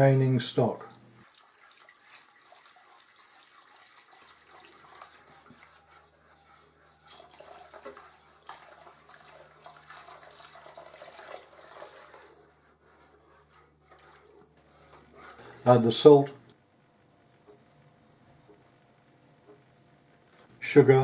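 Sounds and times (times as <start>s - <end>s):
liquid sloshing in saucepan: 0.8s - 15.8s
spatula scraping pan: 3.0s - 15.8s
low steady hum: 4.5s - 21.0s.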